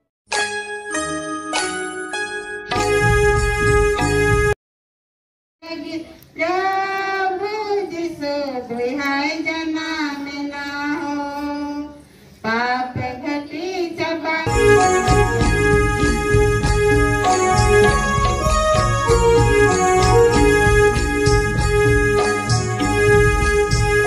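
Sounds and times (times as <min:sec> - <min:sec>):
loud instrumental music: 0:00.4 - 0:04.6, 0:14.5 - 0:24.0.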